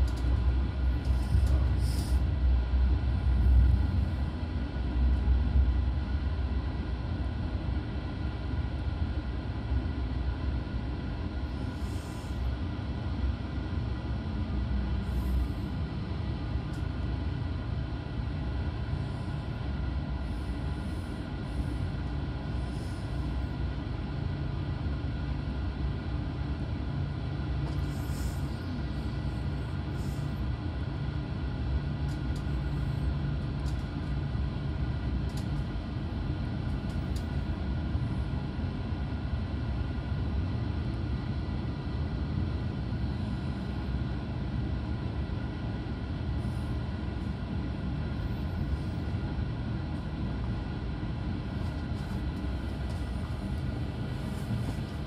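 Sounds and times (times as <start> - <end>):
train wheels rumbling on track: 0.0 - 6.6.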